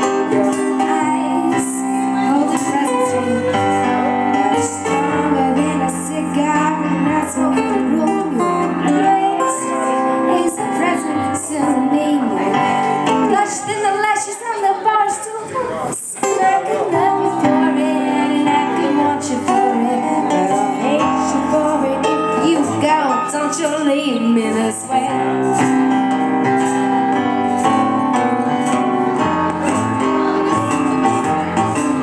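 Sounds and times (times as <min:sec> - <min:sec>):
strummed acoustic guitar: 0:00.0 - 0:13.7, 0:16.1 - 0:32.0
keyboard playing: 0:00.0 - 0:14.0, 0:16.3 - 0:32.0
woman singing: 0:00.0 - 0:25.9.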